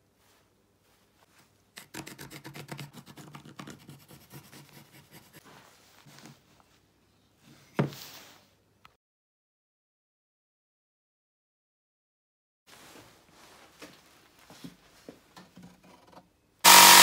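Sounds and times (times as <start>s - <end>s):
pencil scratching on wood: 1.8s - 5.5s.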